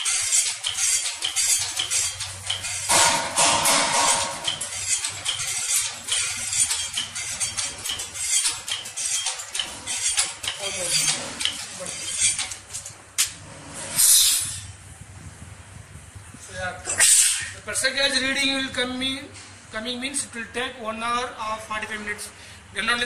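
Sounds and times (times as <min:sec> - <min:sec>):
air compressor clattering: 0:00.0 - 0:13.4
air hissing: 0:13.8 - 0:14.8, 0:16.9 - 0:17.6.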